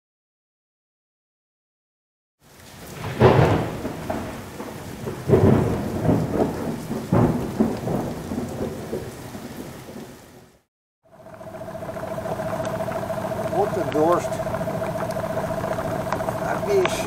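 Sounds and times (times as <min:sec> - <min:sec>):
rain hissing: 0:02.4 - 0:10.0, 0:11.1 - 0:17.0
loud thunderclaps: 0:02.9 - 0:09.2.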